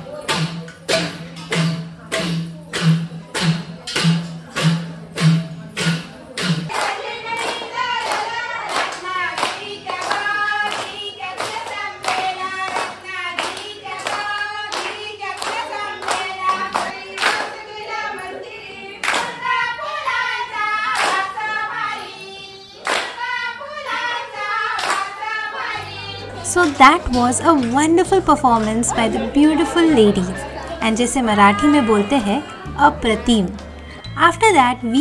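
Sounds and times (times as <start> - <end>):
sharp even drum beat: 0.3 - 6.7
high voice singing folk song: 25.6 - 35.0.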